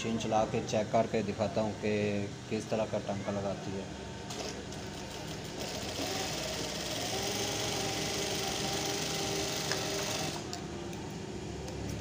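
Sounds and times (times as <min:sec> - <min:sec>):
sewing machine motor whine: 0:04.3 - 0:10.6.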